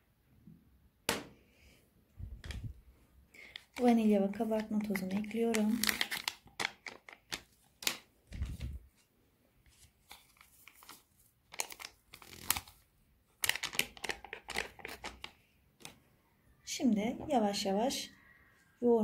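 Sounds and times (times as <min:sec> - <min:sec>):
paper sachets crinkling: 0:03.4 - 0:09.0, 0:09.7 - 0:16.0.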